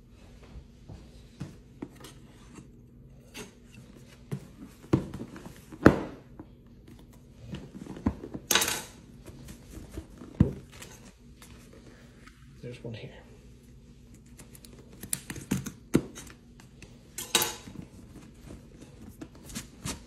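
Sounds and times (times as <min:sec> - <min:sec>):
cardboard scraping on countertop: 0:17.8 - 0:20.0.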